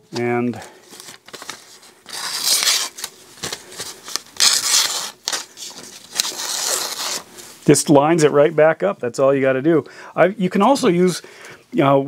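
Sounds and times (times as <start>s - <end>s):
knife slicing paper: 1.3s - 3.1s, 4.1s - 7.3s.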